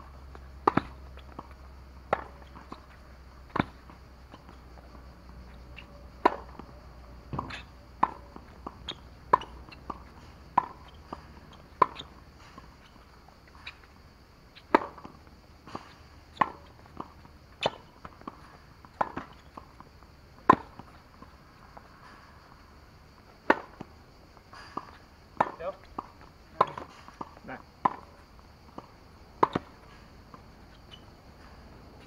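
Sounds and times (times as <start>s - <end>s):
tennis ball struck by racket: 0.6s - 22.2s, 23.4s - 31.1s
ball bouncing on hard court: 7.3s - 12.1s, 24.8s - 28.1s, 28.7s - 29.8s.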